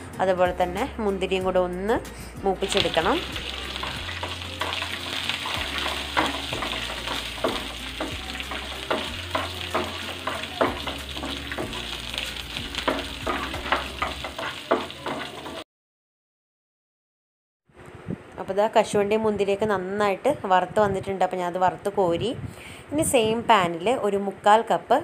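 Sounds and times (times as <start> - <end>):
nuts sizzling in a pan: 2.6 - 15.6
utensil clicking against pan: 3.7 - 15.6.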